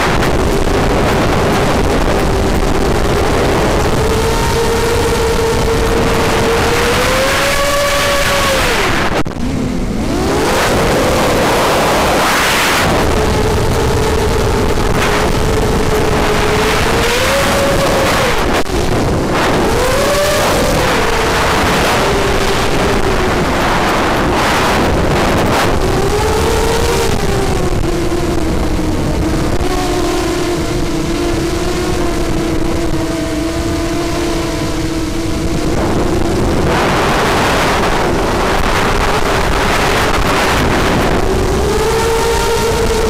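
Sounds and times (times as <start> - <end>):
quadcopter motors buzzing whine: 0.0 - 43.0
wind rush: 0.0 - 43.0.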